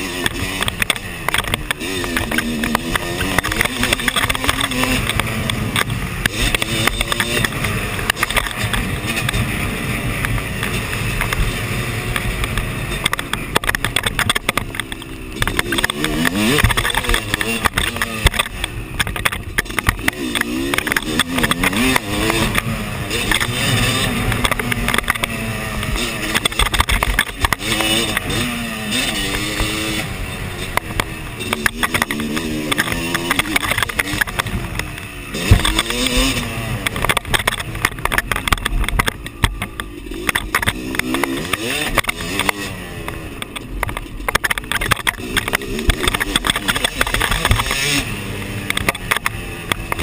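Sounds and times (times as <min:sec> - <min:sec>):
bike knocks and rattles: 0:00.0 - 0:50.0
dirt bike engine revving: 0:00.0 - 0:50.0.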